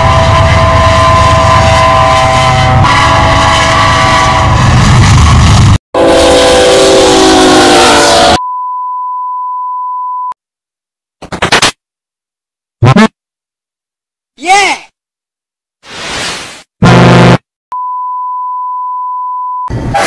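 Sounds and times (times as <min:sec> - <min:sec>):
train air horn: 0:00.0 - 0:08.4.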